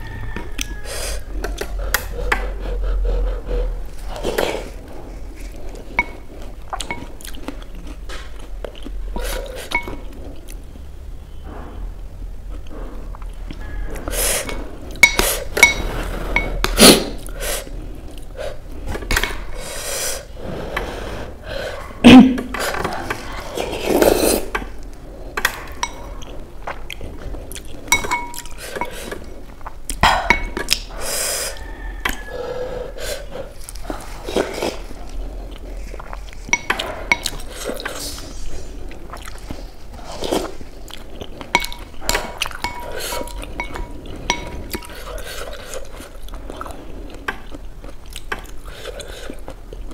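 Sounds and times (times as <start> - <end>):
chewing: 1.4 - 10.6, 22.6 - 30.0, 33.2 - 49.9
spoon clinking on glass bowl: 28.0 - 28.5, 42.6 - 45.0.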